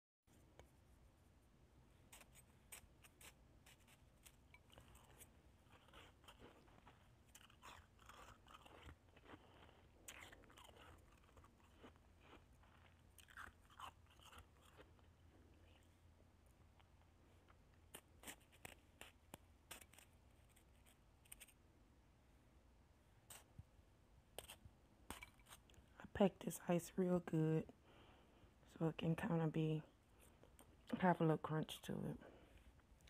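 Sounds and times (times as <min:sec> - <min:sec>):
shaved ice being chewed: 0:02.2 - 0:15.9.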